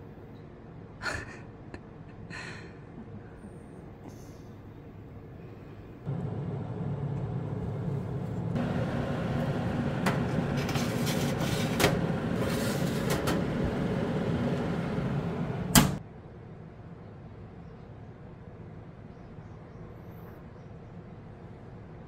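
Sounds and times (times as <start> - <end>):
dehydrator fan humming: 4.7 - 16.0.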